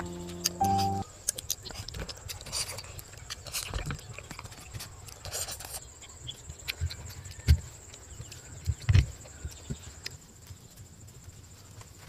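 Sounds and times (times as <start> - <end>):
person chewing and crunching food: 0.3 - 9.7.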